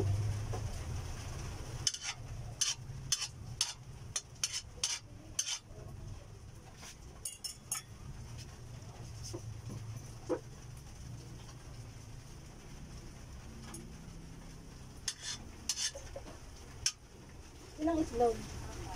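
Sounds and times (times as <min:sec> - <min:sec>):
metal spatula scraping a wok: 0:01.8 - 0:05.8, 0:15.0 - 0:17.0.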